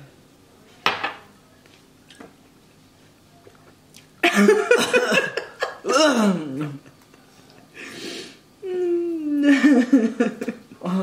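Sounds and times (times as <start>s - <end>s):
person groaning in disgust: 5.8s - 6.8s, 8.6s - 9.5s
harsh burst of breath: 7.8s - 8.5s.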